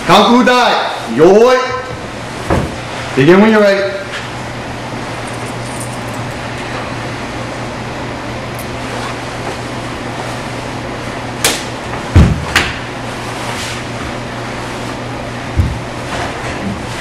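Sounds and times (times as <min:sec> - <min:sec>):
background hum: 0:00.0 - 0:17.0
uniform snapping: 0:11.4 - 0:11.7
bare feet thudding on wooden floor: 0:12.0 - 0:12.8, 0:15.5 - 0:16.3.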